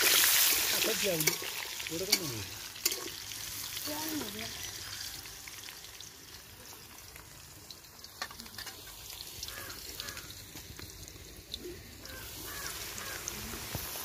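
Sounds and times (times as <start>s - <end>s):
hot oil sizzling and popping: 0.0s - 14.0s
crows cawing: 9.4s - 10.5s, 12.0s - 13.5s.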